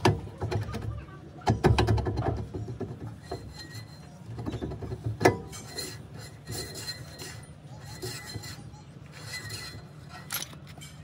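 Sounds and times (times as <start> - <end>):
metal tools clinking and scraping: 3.1 - 11.0.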